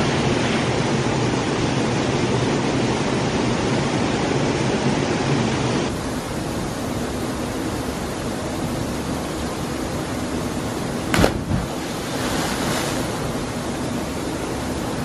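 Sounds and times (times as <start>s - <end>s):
river flowing over rocks: 6.0s - 15.0s.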